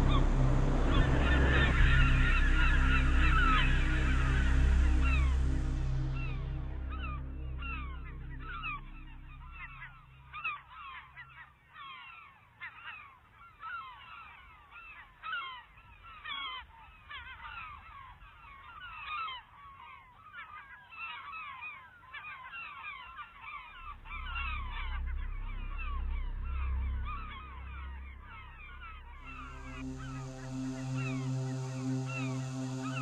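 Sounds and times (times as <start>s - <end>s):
low hum: 0.0s - 11.3s, 23.5s - 33.0s
seagulls calling: 0.0s - 33.0s.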